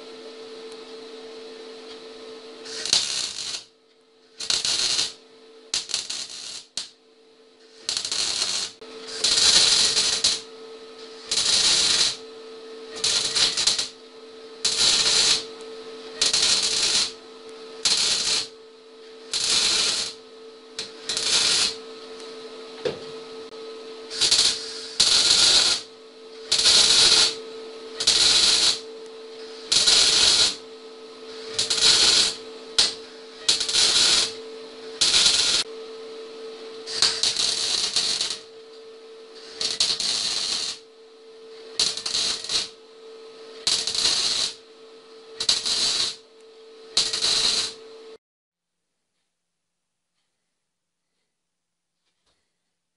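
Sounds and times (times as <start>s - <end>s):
faint hum: 0.0s - 48.2s
welding arc crackling: 2.6s - 3.7s, 4.4s - 7.0s, 7.7s - 10.5s, 11.1s - 12.2s, 12.9s - 14.0s, 14.6s - 17.2s, 17.8s - 18.6s, 19.2s - 20.2s, 20.8s - 21.9s, 24.1s - 27.4s, 28.0s - 30.6s, 31.3s - 34.4s, 35.0s - 35.7s, 36.9s - 38.5s, 39.4s - 40.8s, 41.7s - 42.8s, 43.6s - 44.6s, 45.4s - 46.2s, 46.9s - 47.8s.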